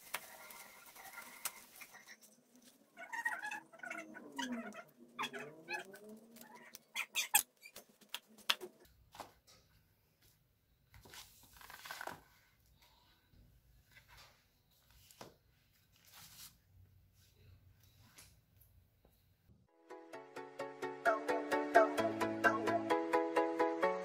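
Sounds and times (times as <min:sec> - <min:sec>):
sandal rustling on newspaper: 0:00.0 - 0:02.0.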